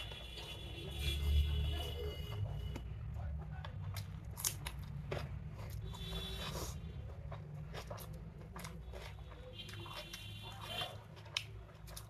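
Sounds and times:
person chewing with wet mouth clicks: 2.7 - 12.0.

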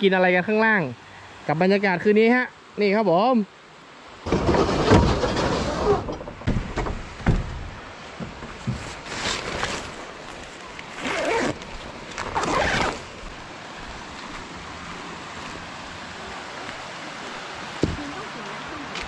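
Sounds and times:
rocky stream rushing: 0.0 - 19.0
tent door scraping and rustling: 4.2 - 13.4.

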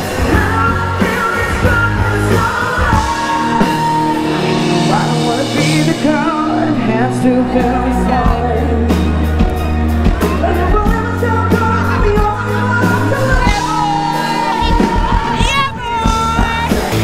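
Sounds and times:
live rock music with singer: 0.0 - 17.0.

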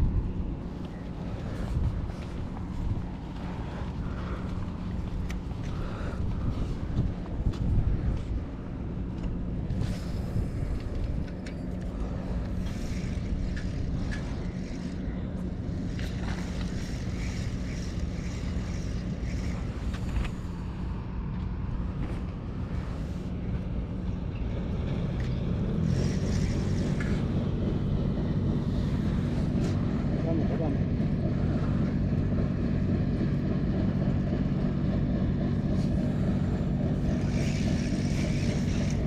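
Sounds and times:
wind noise on microphone: 0.0 - 30.2
low motor hum: 0.0 - 39.0.

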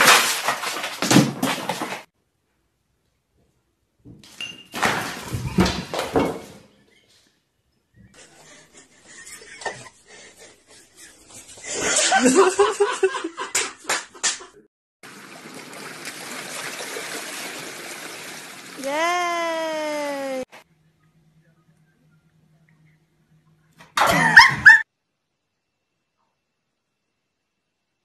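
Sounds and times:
person laughing: 8.2 - 14.6, 18.8 - 20.5, 24.0 - 24.8
water splashing: 15.0 - 20.1.

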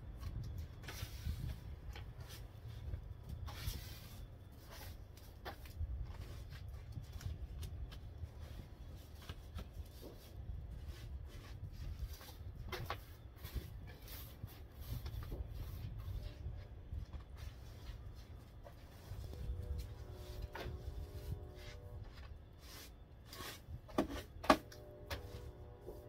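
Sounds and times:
snow brush scraping snow: 3.5 - 5.1, 17.5 - 26.0.

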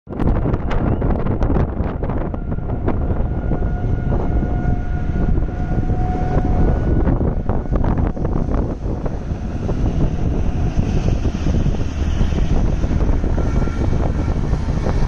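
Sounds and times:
wind buffeting microphone: 0.1 - 15.0.

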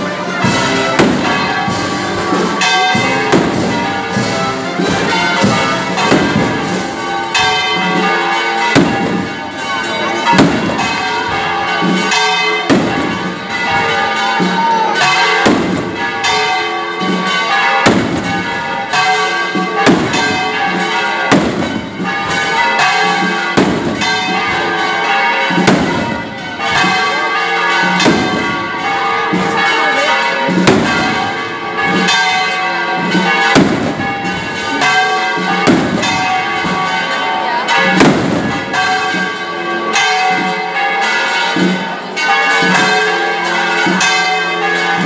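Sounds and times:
sharp bang: 0.0 - 8.0, 8.6 - 9.4, 10.2 - 14.5, 15.4 - 16.4, 17.8 - 18.6, 25.6 - 26.9, 30.6 - 32.2
church bells ringing: 0.0 - 45.0.

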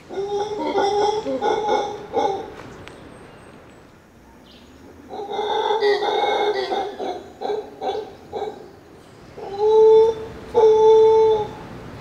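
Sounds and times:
monkey grunting calls: 0.0 - 2.5, 5.0 - 11.7
monkey howling: 0.0 - 2.5, 5.1 - 8.8, 9.4 - 11.7.

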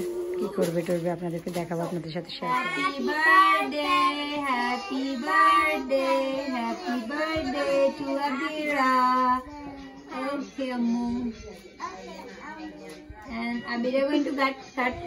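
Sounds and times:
woman singing: 0.0 - 1.0, 2.4 - 11.4
children singing: 2.6 - 10.4.

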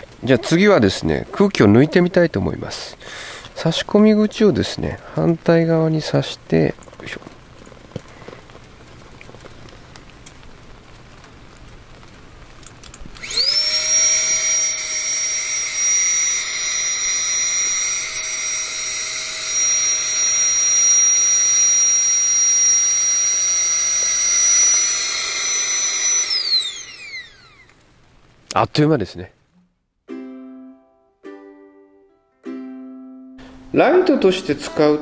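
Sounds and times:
air pump whining: 13.1 - 27.8.

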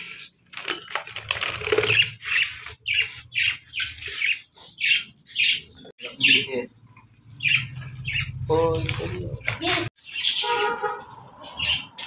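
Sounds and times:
wing flapping and rustling: 0.4 - 2.7.

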